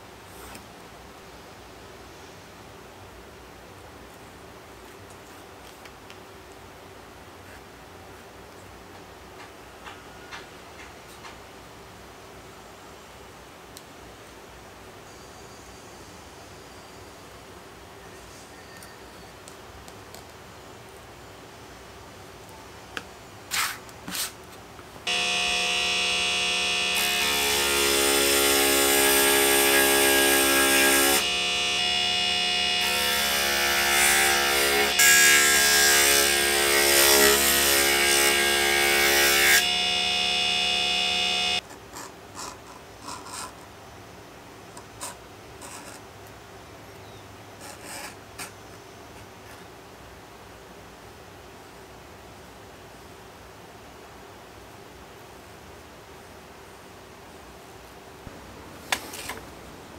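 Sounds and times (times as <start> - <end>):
electric burnisher motor running: 25.1 - 35.0, 38.3 - 41.6.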